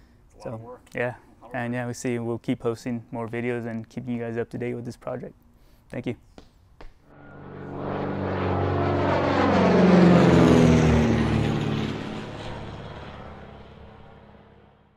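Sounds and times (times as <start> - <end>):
propeller airplane flying past: 7.0 - 14.9.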